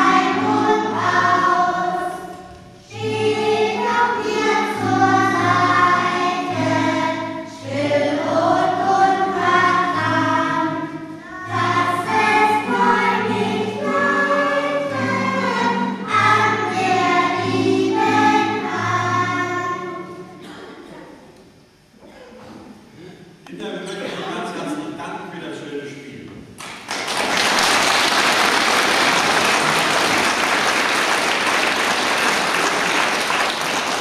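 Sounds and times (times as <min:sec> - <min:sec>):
children singing in chorus: 0:00.0 - 0:20.6.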